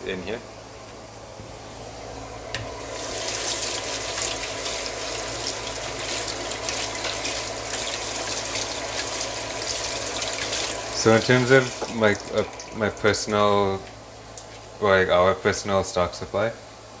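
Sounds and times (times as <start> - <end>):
tap running into sink: 11.5 - 12.5.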